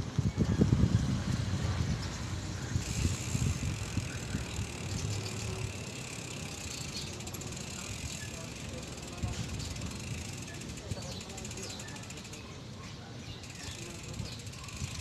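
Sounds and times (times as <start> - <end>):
wind buffeting microphone: 0.0 - 8.4, 13.7 - 15.0
tyres rolling on concrete: 1.7 - 12.4.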